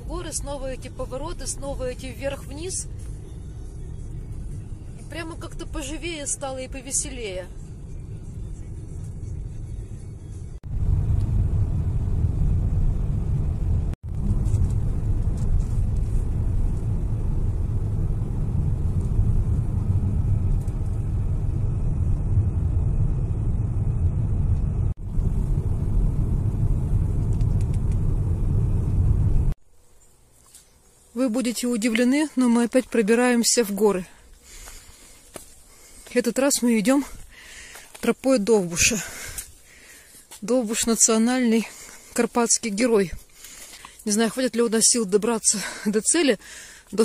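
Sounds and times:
car road rumble inside cabin: 0.0 - 29.6.

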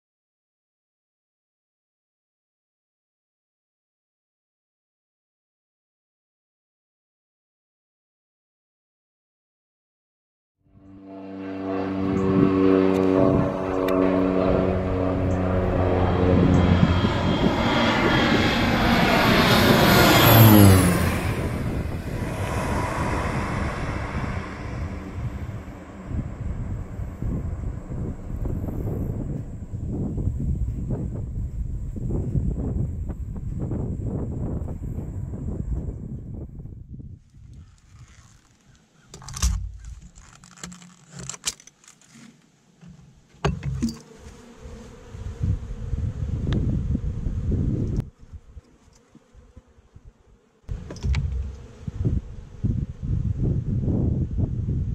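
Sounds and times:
airplane engine and propeller drone: 10.7 - 54.9
honeybees buzzing: 11.2 - 31.6, 42.8 - 53.2
sharp clattering knocks: 50.8 - 51.6.

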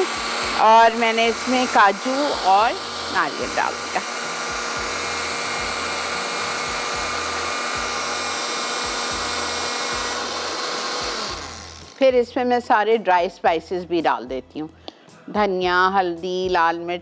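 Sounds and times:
electric blender running: 0.0 - 12.1.

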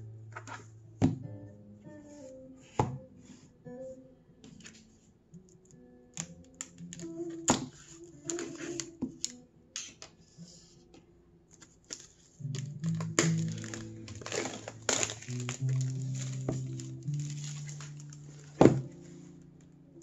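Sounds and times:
plastic wrap crinkling: 6.2 - 9.4, 11.6 - 19.1
knife clicking on shrink-wrap: 11.9 - 18.7.

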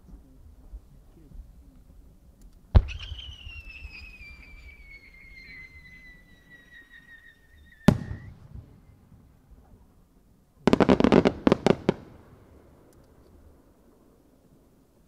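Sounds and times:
firework cracks volley: 2.7 - 9.3, 10.7 - 13.2
firework bang: 2.8 - 6.2, 7.8 - 8.9
firework whistle: 2.8 - 9.0.

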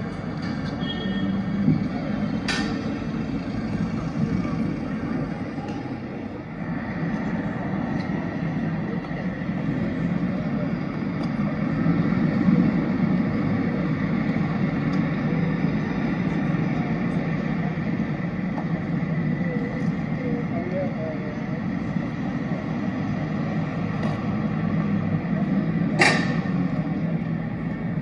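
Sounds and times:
city traffic hum: 0.0 - 28.0.

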